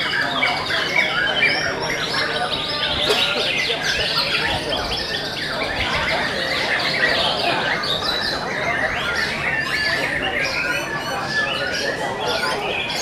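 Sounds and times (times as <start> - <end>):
birds singing whistles and trills: 0.0 - 13.0.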